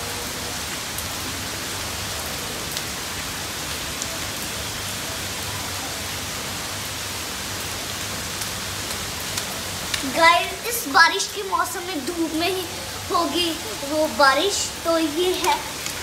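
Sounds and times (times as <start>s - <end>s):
rain falling on hard floor: 0.0s - 16.0s
single raindrops ticking: 8.4s - 13.0s, 13.6s - 16.0s.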